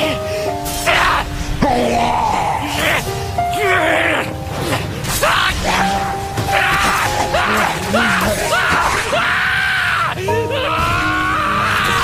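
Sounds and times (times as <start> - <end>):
fight scene music: 0.0 - 9.4.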